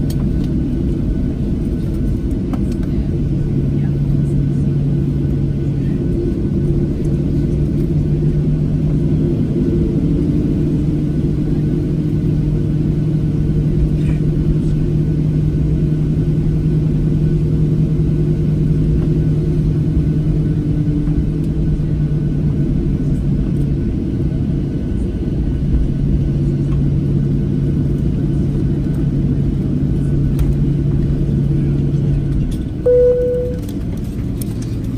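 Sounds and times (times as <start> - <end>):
aircraft cabin rumble and engine hum: 0.0 - 34.9
short chime tone: 32.9 - 33.7.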